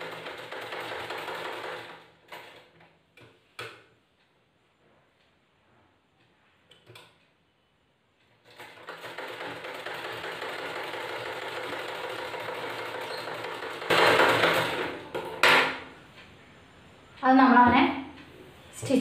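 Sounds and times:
sewing machine stitching: 0.0 - 2.7, 8.4 - 15.6.

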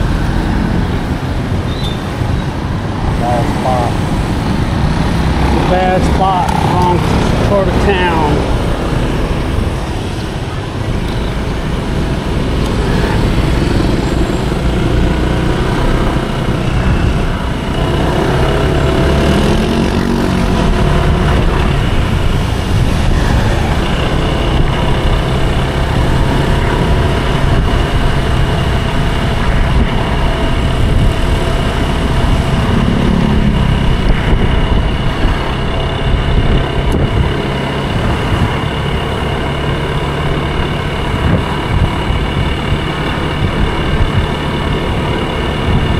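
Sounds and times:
road rumble: 0.0 - 45.9
motor scooter engine running: 11.6 - 45.9.

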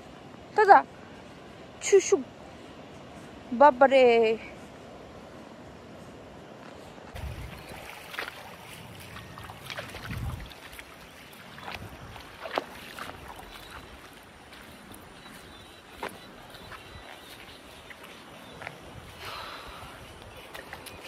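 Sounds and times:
wind buffeting microphone: 4.4 - 21.0
river water rushing: 7.1 - 21.0.

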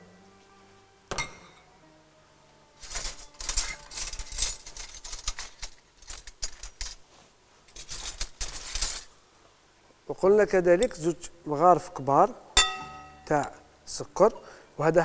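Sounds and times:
kitchen utensils clinking: 2.8 - 7.0, 12.6 - 13.3.

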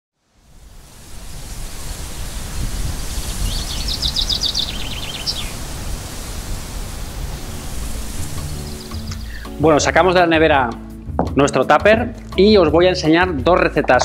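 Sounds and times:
steady rushing noise: 0.4 - 9.1
bird chirping: 3.2 - 5.7, 8.4 - 9.6.

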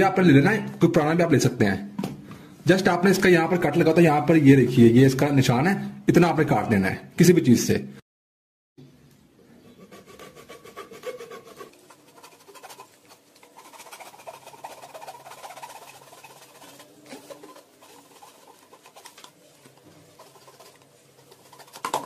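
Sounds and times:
hacksaw sawing plastic: 9.8 - 22.0.

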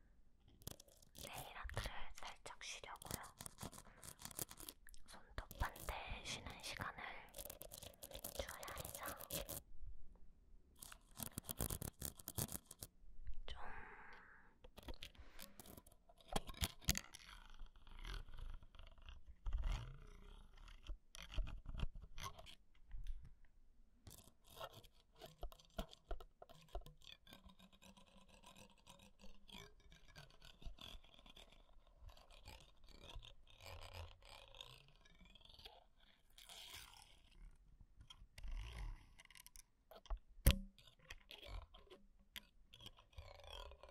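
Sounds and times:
clicks and rubbing on microphone: 0.6 - 9.6, 10.8 - 13.0, 14.7 - 17.6, 38.0 - 42.5.

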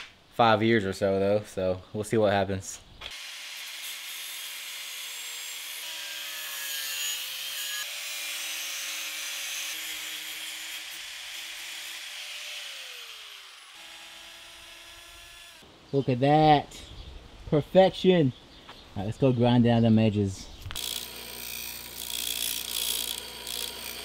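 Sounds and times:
angle grinder cutting metal: 3.1 - 15.6, 20.7 - 24.0.

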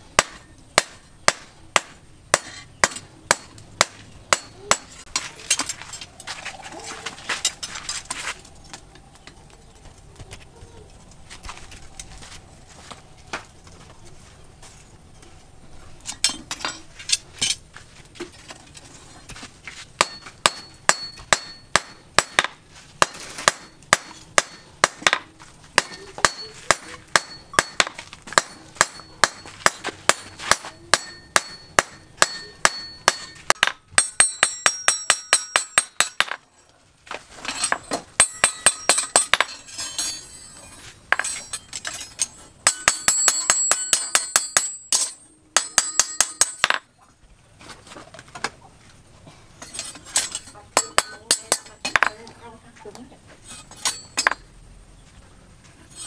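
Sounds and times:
hammer striking metal on anvil: 0.2 - 5.0, 20.0 - 36.4, 37.6 - 46.8, 49.6 - 52.2, 53.8 - 54.4.

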